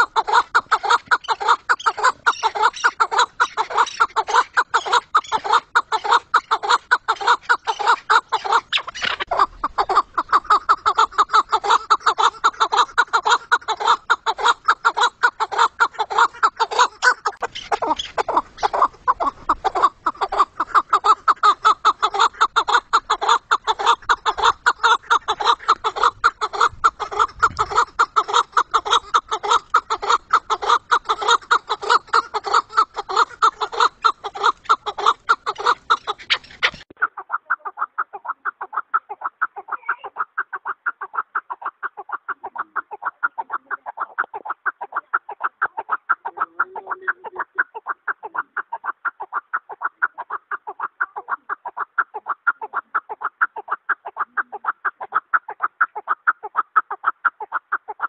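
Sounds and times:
partridge clucking: 0:00.0 - 0:58.0.

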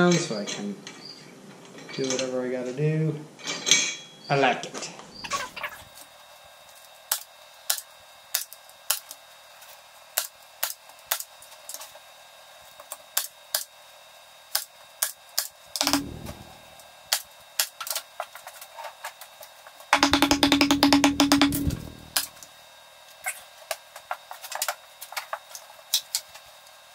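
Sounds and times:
hand tool clicking on wood: 0:20.0 - 0:22.3.

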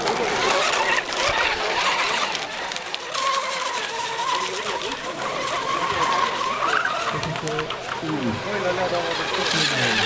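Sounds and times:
motor and propeller whine: 0:00.0 - 0:10.0.

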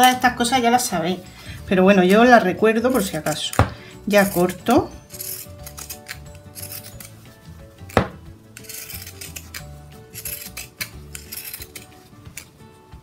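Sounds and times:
shears snipping fabric: 0:02.1 - 0:12.6.

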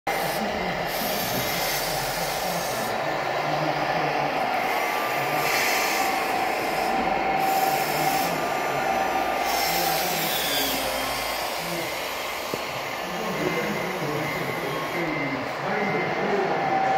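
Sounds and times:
small electric motors whirring: 0:00.1 - 0:02.9, 0:04.6 - 0:15.1
faint motor whine: 0:00.1 - 0:16.9
steady hum of machines: 0:00.1 - 0:16.9.

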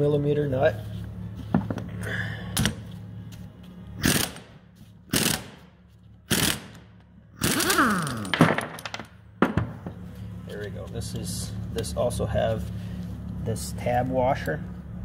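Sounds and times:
impact wrench hammering: 0:04.0 - 0:09.7.

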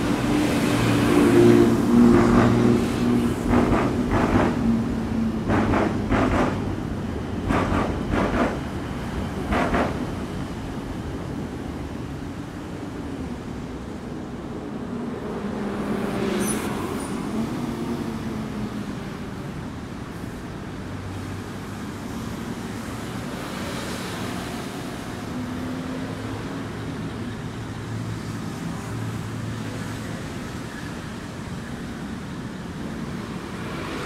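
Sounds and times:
vehicles driving past: 0:00.0 - 0:08.6.

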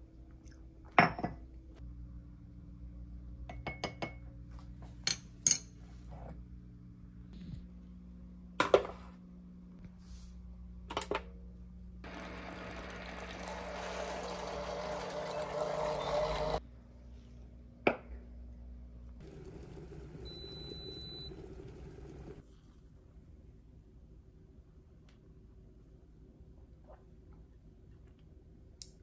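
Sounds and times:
mug clinking on stone counter: 0:01.0 - 0:01.4, 0:03.5 - 0:04.2
water pouring into mug: 0:12.1 - 0:16.6, 0:19.2 - 0:22.4.

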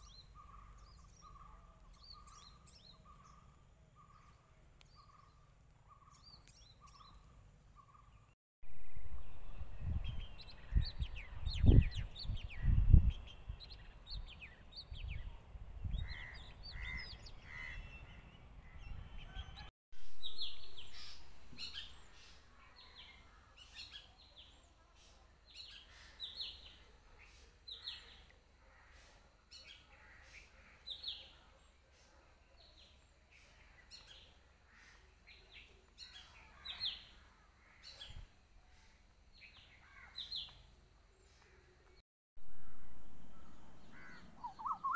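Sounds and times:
birds chirping: 0:00.0 - 0:44.9
wind buffeting microphone: 0:09.2 - 0:16.9.

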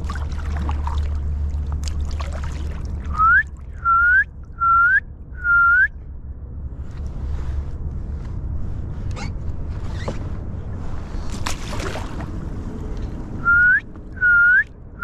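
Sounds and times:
steady low rumble: 0:00.0 - 0:15.0
whistled notes sliding up: 0:03.1 - 0:05.9, 0:13.4 - 0:14.7.

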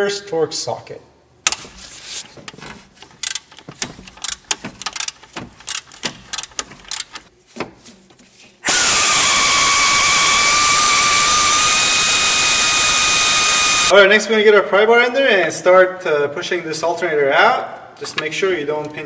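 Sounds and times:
metallic clicks of a tool: 0:03.2 - 0:07.3
power tool whining: 0:08.6 - 0:13.9.

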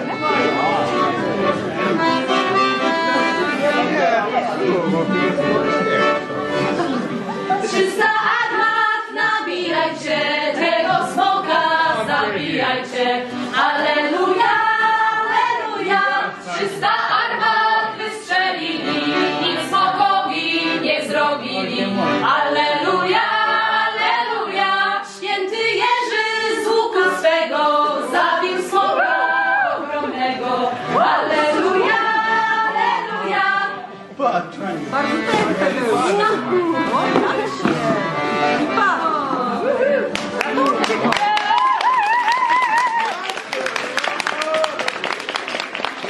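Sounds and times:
voices singing a chant: 0:07.6 - 0:34.0.

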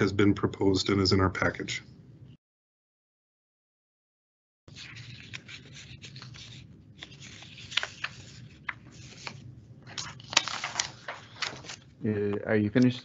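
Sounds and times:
paper rustling and scratching: 0:04.7 - 0:11.9
low steady hum: 0:04.7 - 0:13.0.

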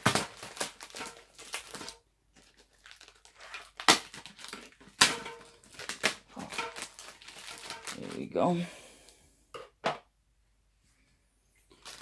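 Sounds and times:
plastic shrink-wrap crinkling: 0:00.0 - 0:08.5, 0:11.7 - 0:12.0.

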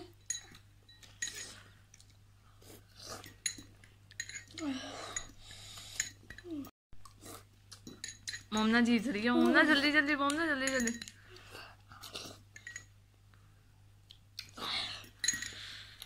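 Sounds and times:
forks clinking against glass bowls: 0:00.2 - 0:01.6, 0:03.4 - 0:05.4, 0:07.8 - 0:08.7, 0:10.6 - 0:11.2, 0:12.6 - 0:12.9, 0:15.2 - 0:15.7.

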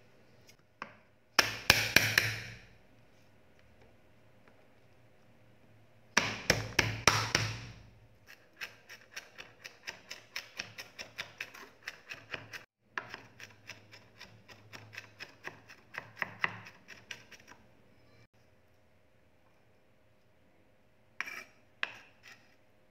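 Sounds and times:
knife chopping on wooden board: 0:01.4 - 0:02.6, 0:06.2 - 0:07.8, 0:08.6 - 0:17.3
knife blade crushing garlic: 0:08.3 - 0:17.6.

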